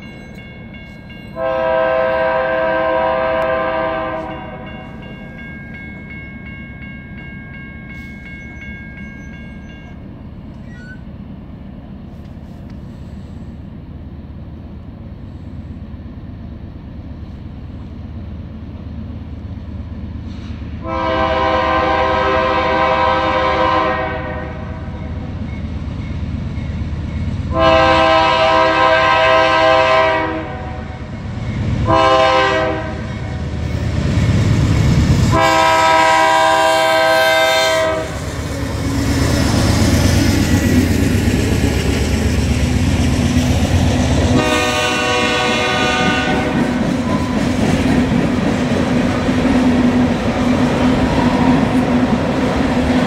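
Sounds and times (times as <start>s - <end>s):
train rumble: 0.0s - 53.0s
train horn blasts: 1.4s - 5.0s, 20.8s - 25.2s, 27.5s - 31.2s, 31.8s - 33.6s, 35.3s - 38.3s, 44.3s - 47.4s.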